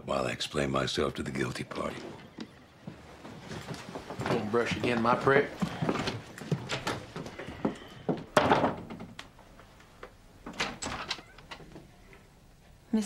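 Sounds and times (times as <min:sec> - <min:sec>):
door clicks and knocks: 0:08.2 - 0:09.2, 0:10.5 - 0:11.8.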